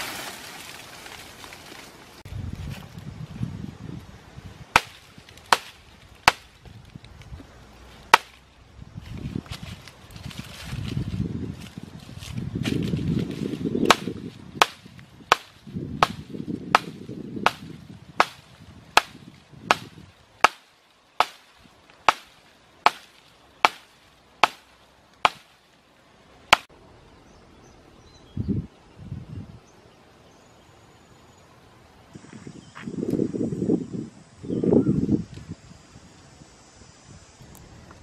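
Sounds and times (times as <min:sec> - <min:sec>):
blade chopping into wood: 0:04.8 - 0:06.5, 0:08.1 - 0:08.4, 0:13.9 - 0:18.4, 0:19.0 - 0:21.4, 0:22.1 - 0:25.5.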